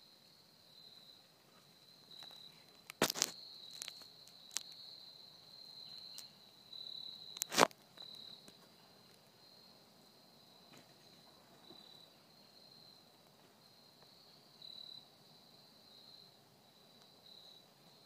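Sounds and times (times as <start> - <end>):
insects droning: 0.0 - 18.0
sharp cracks: 2.8 - 4.7, 7.4 - 7.8.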